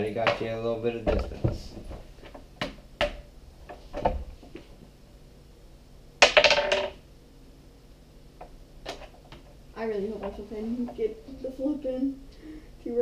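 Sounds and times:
game pieces clattering: 6.2s - 7.0s
game pieces knocking on wooden table: 6.2s - 7.0s.

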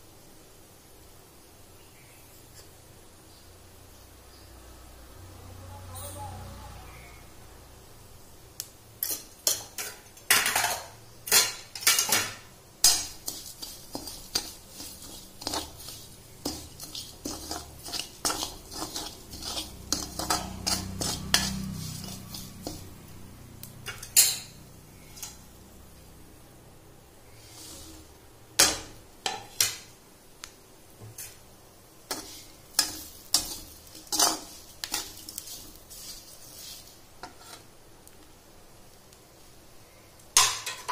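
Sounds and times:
metal spatula scraping metal pan: 9.0s - 23.0s, 23.8s - 25.5s, 32.1s - 37.7s.

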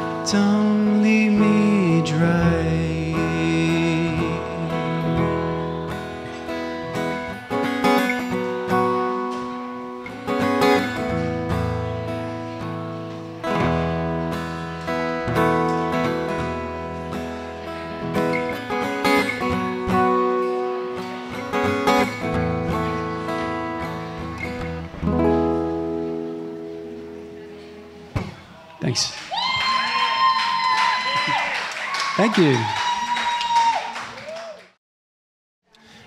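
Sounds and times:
acoustic guitar playing: 0.0s - 28.5s.

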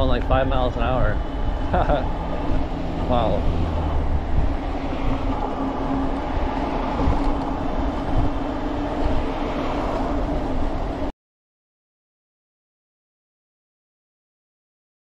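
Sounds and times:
road noise: 0.0s - 11.1s
wind buffeting microphone: 0.0s - 11.1s.

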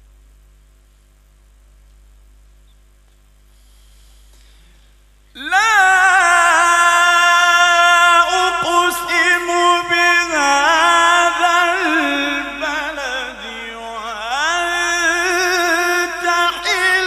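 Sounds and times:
faint hum: 0.0s - 17.0s
man reciting melodically: 5.3s - 17.0s.

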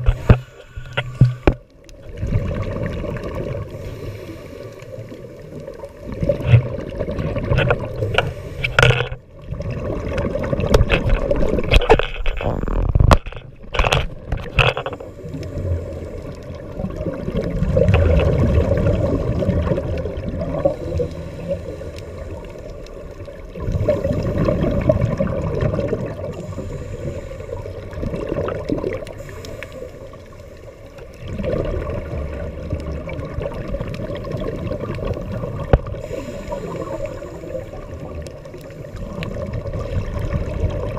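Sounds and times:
diver breathing through regulator: 0.0s - 1.6s, 3.7s - 5.3s, 8.0s - 9.1s, 26.3s - 27.9s, 29.1s - 31.0s, 35.9s - 38.0s
bubbles gurgling underwater: 0.0s - 3.9s, 4.9s - 8.3s, 9.3s - 14.7s, 15.3s - 29.4s, 31.0s - 40.9s
crackling and clicking: 0.0s - 3.9s, 4.5s - 40.9s.

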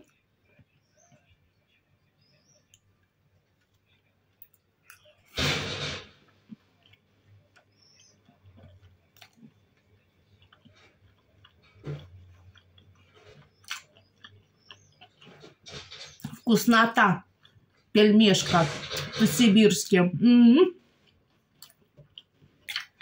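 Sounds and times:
loud burst of noise: 5.4s - 6.2s
person chewing: 6.2s - 16.4s, 17.3s - 17.9s, 20.9s - 23.0s.

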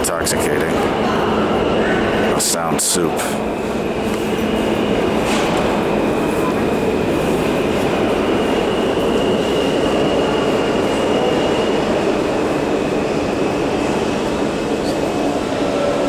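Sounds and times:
subway train rumble: 0.0s - 16.0s
high wheel squeal: 3.6s - 12.1s.

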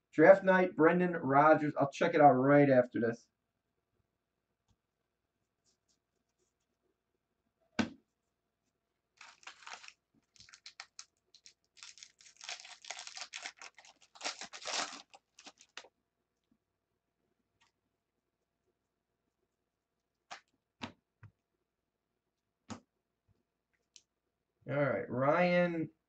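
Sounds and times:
foil wrapper tearing and crinkling: 9.2s - 15.9s.

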